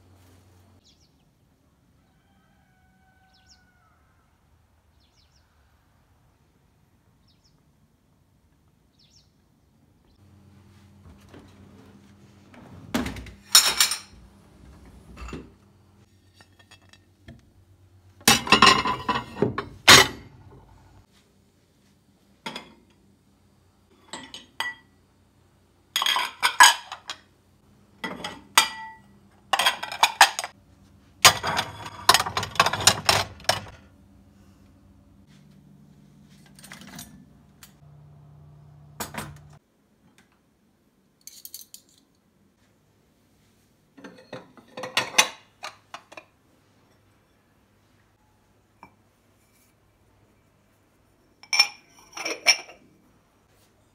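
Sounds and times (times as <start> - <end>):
ceramic plates clinking: 13.4 - 14.2, 16.2 - 17.1, 18.3 - 20.6, 26.0 - 27.3, 28.0 - 30.6, 31.2 - 33.8, 44.0 - 47.1, 51.4 - 52.9.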